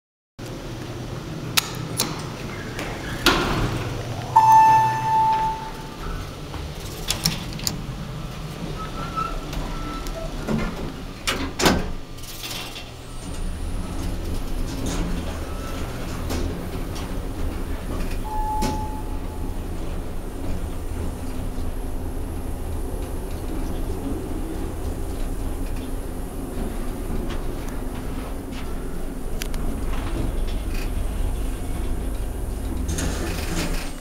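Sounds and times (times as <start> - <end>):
elevator low steady hum: 0.5 - 34.0
elevator doors sliding: 0.6 - 34.0
elevator arrival chime: 4.0 - 6.5, 18.0 - 23.0
elevator button clicks: 4.1 - 6.2, 18.2 - 19.3.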